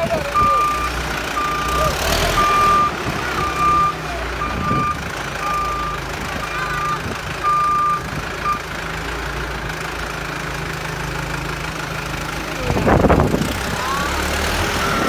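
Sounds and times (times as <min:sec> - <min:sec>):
diesel engine running: 0:00.0 - 0:15.0
reversing alarm beeping: 0:00.4 - 0:06.0, 0:06.8 - 0:08.6, 0:13.9 - 0:15.0.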